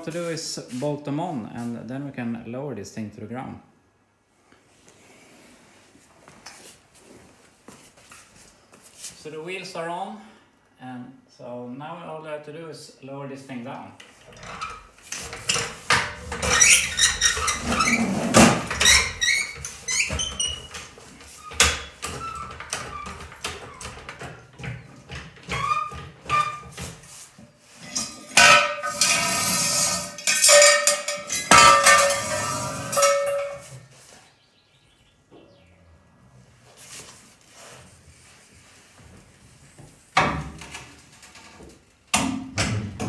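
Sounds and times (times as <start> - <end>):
metal scraping and squeaking: 14.3 - 24.6, 25.4 - 26.9, 27.7 - 33.9
metal jack clanking: 27.8 - 33.7.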